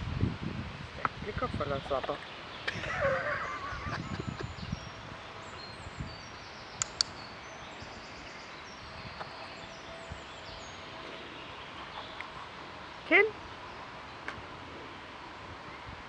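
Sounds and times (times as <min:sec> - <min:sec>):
faint birdsong: 0:01.0 - 0:16.0
training clicker double click: 0:06.8 - 0:07.1.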